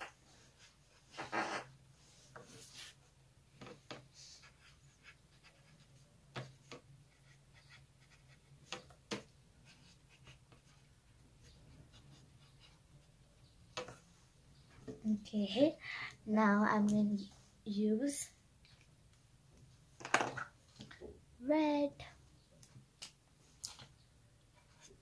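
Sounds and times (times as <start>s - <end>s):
marker scratching on paper: 7.1s - 8.8s, 9.6s - 13.1s.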